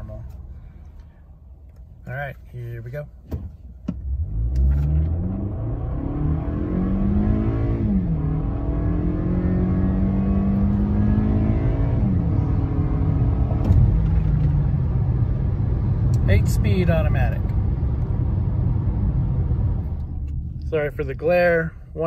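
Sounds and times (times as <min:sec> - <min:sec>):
car engine accelerating: 0:03.9 - 0:21.0.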